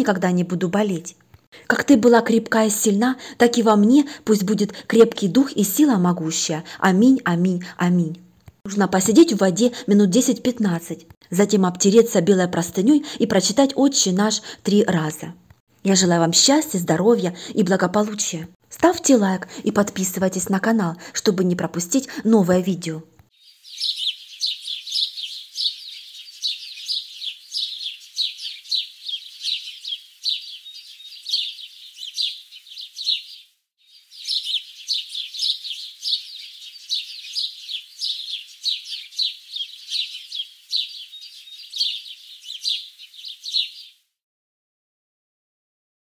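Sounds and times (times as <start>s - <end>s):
songbirds chirping: 19.0s - 44.1s.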